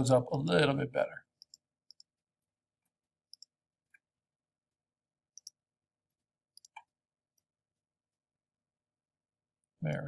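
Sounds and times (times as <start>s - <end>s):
computer mouse clicks: 1.4s - 2.3s, 2.9s - 4.1s, 5.3s - 7.9s.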